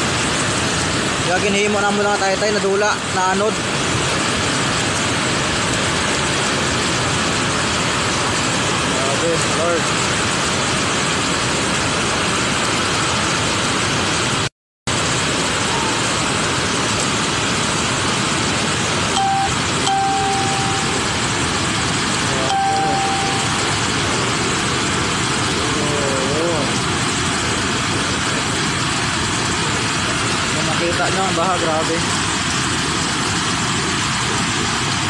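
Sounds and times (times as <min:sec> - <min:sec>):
rushing waterfall torrent: 0:00.0 - 0:14.4.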